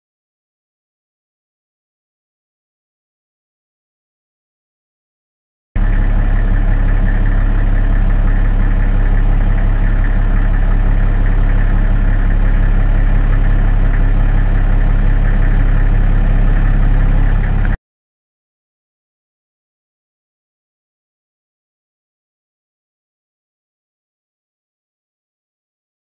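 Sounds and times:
engine idling: 0:05.8 - 0:17.8.

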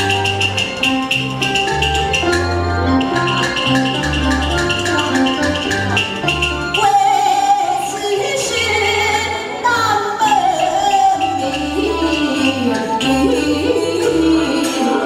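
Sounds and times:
band bass and percussion beat: 0:00.0 - 0:07.3
wavering held melody: 0:00.0 - 0:15.0.

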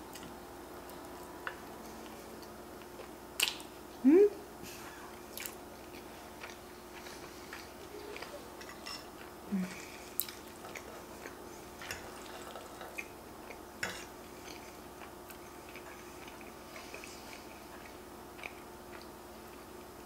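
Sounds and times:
chewing pasta: 0:05.1 - 0:20.0.

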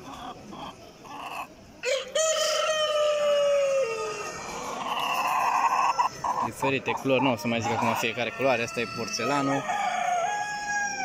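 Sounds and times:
rooster crowing: 0:01.8 - 0:04.7, 0:07.6 - 0:11.0.

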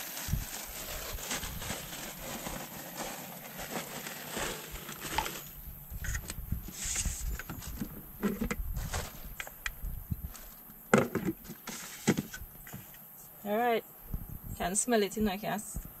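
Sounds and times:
faint hiss: 0:00.0 - 0:16.0
low rumble on microphone: 0:05.5 - 0:10.5, 0:14.1 - 0:14.6.

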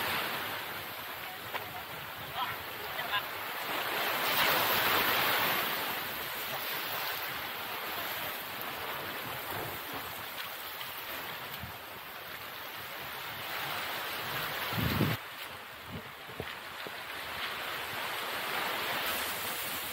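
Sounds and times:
ocean surf on rocky shore: 0:00.0 - 0:19.9
fizz of receding foam: 0:18.8 - 0:19.9.

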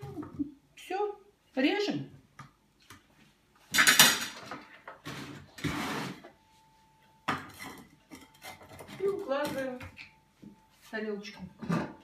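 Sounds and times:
kitchenware clattering: 0:03.7 - 0:05.4, 0:07.3 - 0:10.2, 0:11.4 - 0:12.0.

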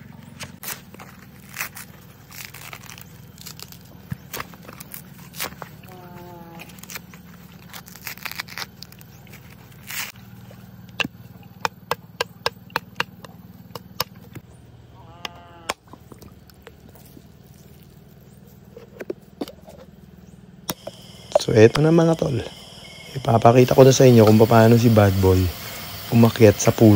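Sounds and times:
machete knocking coconut: 0:11.0 - 0:14.2.

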